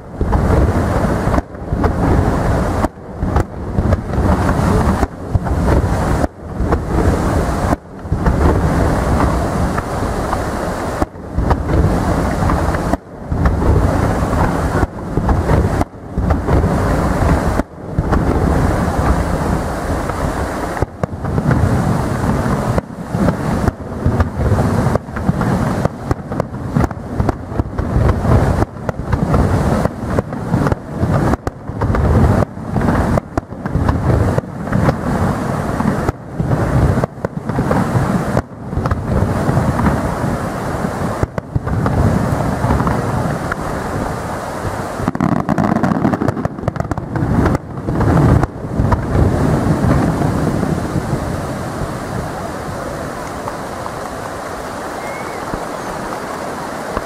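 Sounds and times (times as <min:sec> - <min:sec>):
firework shells bursting: 0:00.0 - 0:57.0.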